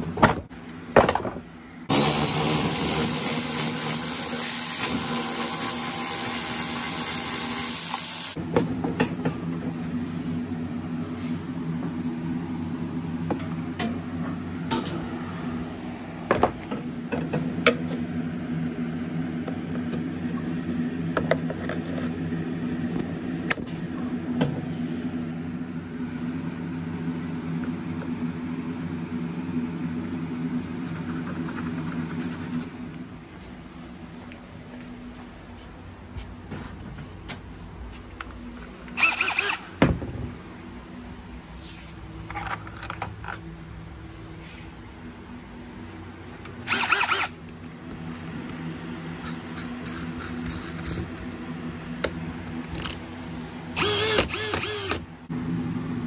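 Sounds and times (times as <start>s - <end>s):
steady low hum: 8.3s - 39.0s.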